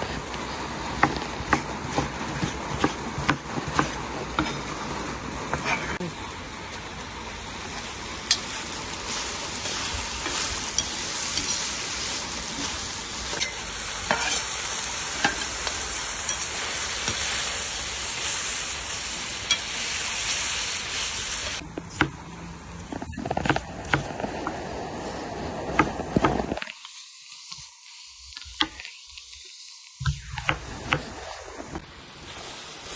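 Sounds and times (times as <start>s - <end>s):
meat and vegetables sizzling: 0.0s - 32.9s
knife chopping on wooden board: 1.0s - 4.5s.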